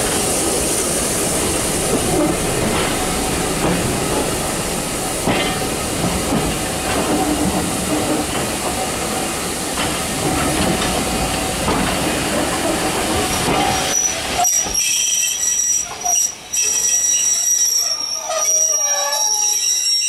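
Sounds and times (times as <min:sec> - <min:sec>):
train wheels rumbling on rails: 0:00.0 - 0:18.8
steel wheels squealing: 0:13.2 - 0:20.0.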